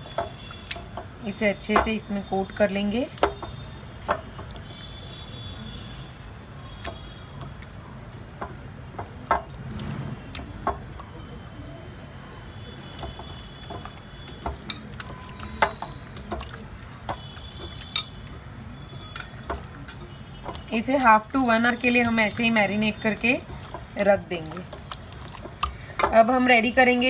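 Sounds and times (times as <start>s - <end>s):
wet squelching of raw meat: 12.9s - 18.5s, 19.1s - 26.0s.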